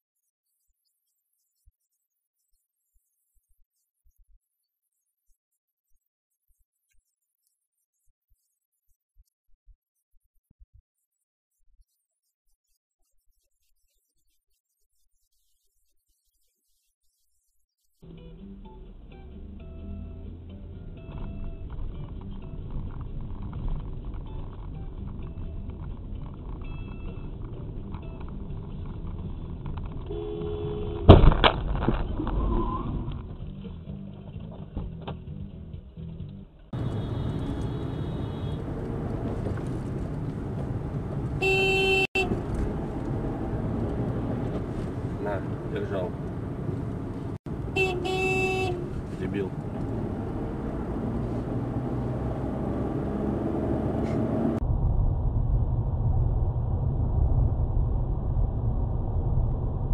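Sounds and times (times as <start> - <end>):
car road and engine rumble: 18.0 - 59.9
steady low rumble: 54.5 - 59.9.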